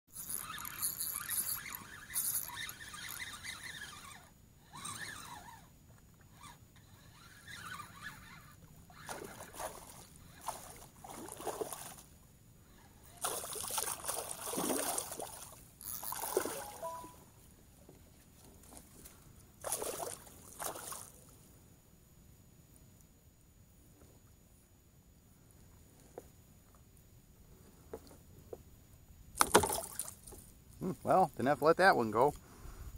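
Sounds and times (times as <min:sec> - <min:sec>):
fish splashing in water: 0:13.2 - 0:17.0.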